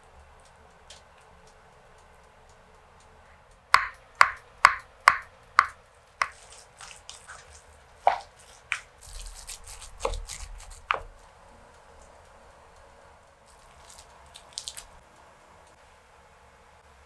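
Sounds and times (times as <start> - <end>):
utensils knocking on glass bowl: 3.8 - 6.4
wet squelching and scraping: 6.2 - 11.3, 13.4 - 15.0.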